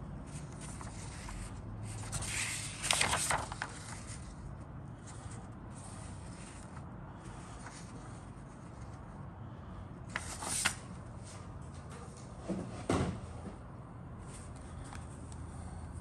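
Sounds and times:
steady low hum: 0.0s - 16.0s
paper rustling: 0.2s - 9.0s, 10.1s - 11.4s.

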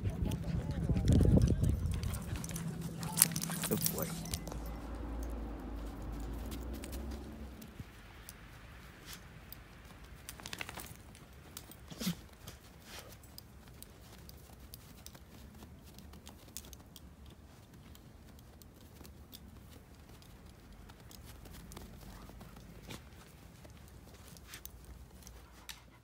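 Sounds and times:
footsteps crunching in snow: 2.0s - 16.0s.

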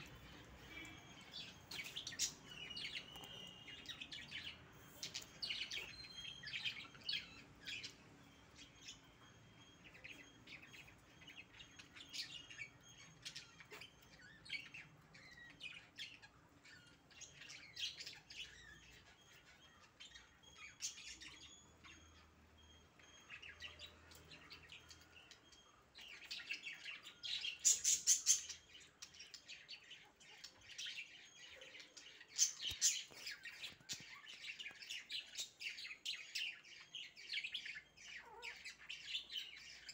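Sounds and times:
puppies squeaking: 37.8s - 39.0s.

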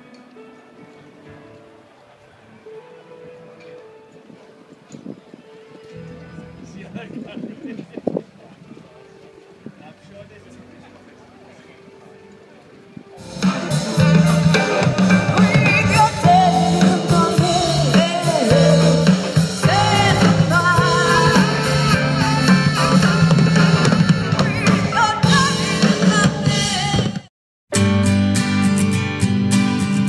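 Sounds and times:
strummed guitar music: 12.1s - 26.6s, 27.7s - 30.0s
band music with drums: 13.2s - 30.0s.

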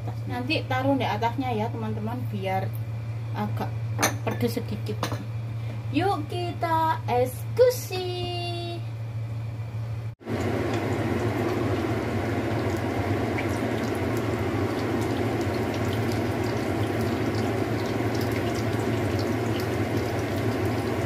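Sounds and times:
food frying in oil: 10.2s - 21.0s.

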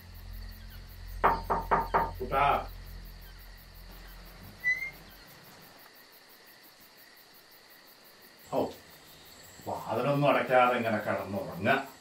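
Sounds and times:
low hum: 0.0s - 5.9s
crickets chirping: 0.0s - 12.0s
short rising chirp: 2.5s - 5.5s.

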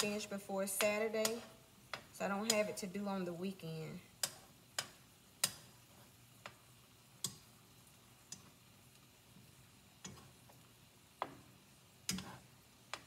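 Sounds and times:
tongs tapping skillet: 0.0s - 3.4s, 4.1s - 13.0s.

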